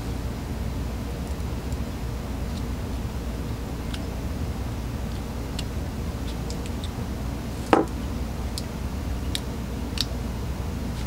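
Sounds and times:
low hum: 0.0 - 11.0
knock: 7.7 - 7.9.

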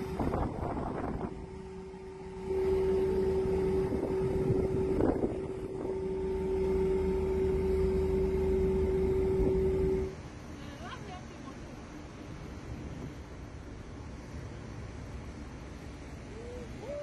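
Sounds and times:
wind on microphone: 0.0 - 10.2
boat engine running: 0.0 - 11.0.

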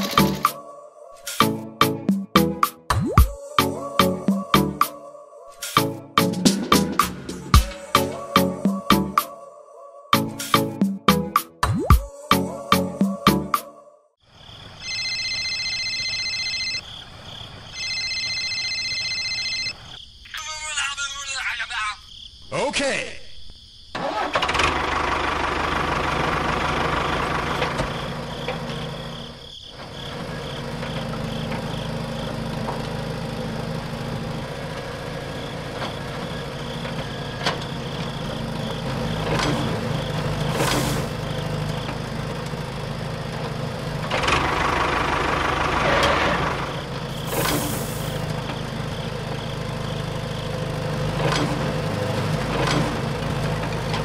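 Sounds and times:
heavy machinery engine idling: 24.6 - 29.1, 29.8 - 54.0.

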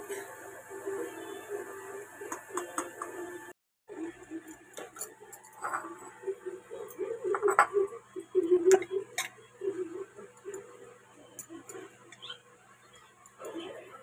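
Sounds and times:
low wavering hum: 3.2 - 14.0
metal spoon clinking and scraping: 4.4 - 6.2.

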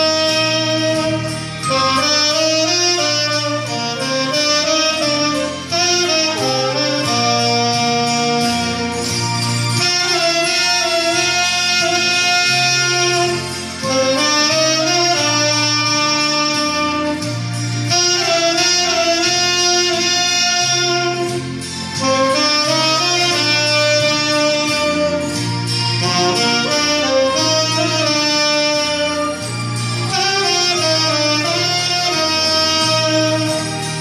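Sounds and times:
low bass accompaniment: 0.0 - 34.0
saxophones playing hymn melody: 0.0 - 34.0.

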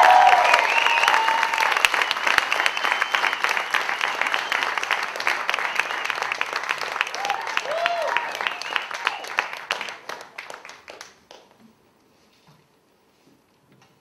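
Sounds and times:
cheers and whoops: 0.0 - 1.9, 7.0 - 9.5
audience applauding: 0.0 - 11.5.

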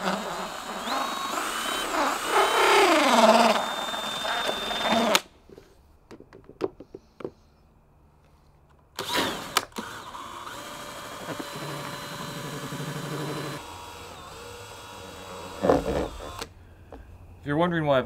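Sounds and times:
cordless drill stirring paint: 0.0 - 5.3, 9.0 - 16.5.

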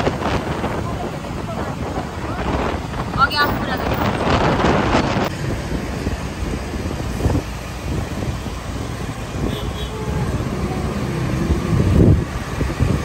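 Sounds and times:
road traffic noise: 0.0 - 13.0
wind on microphone: 0.0 - 13.0.

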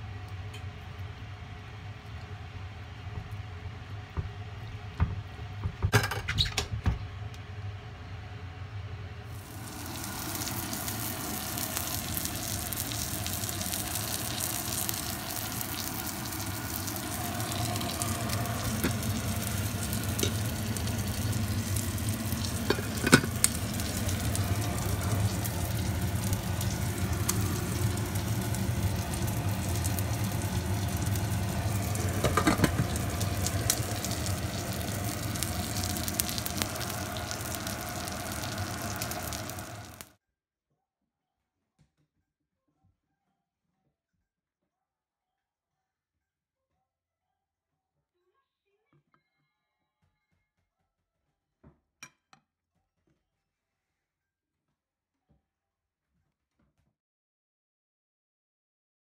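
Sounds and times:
food sizzling: 9.3 - 40.1.

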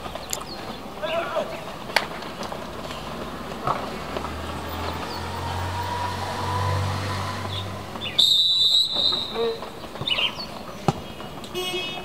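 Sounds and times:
vehicle engine rumbling past: 2.6 - 8.3
shrill whistle blast: 8.0 - 9.6.

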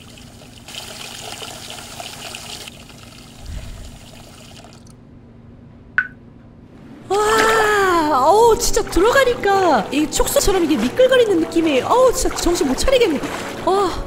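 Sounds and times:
water pouring into bathtub: 0.0 - 4.9, 7.3 - 14.0
short sharp blip: 6.0 - 6.2.

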